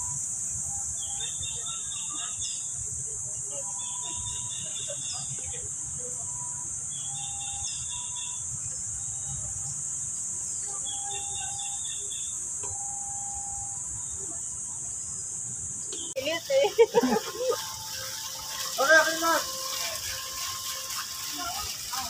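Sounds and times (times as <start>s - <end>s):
whistled bird notes: 0.0s - 2.6s, 3.5s - 5.4s, 6.9s - 8.4s, 10.5s - 14.2s
high-pitched insect drone: 0.0s - 14.7s, 16.2s - 22.0s.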